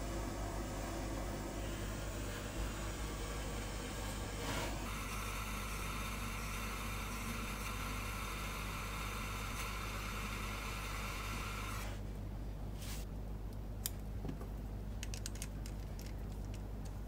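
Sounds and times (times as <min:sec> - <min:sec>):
small motor whirring: 0:04.1 - 0:12.0.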